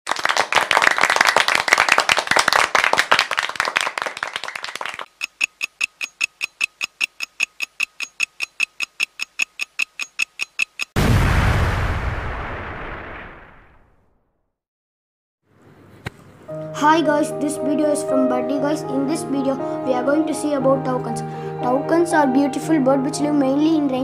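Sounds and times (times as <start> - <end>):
even ticking with faint tone: 5.1 - 11.0.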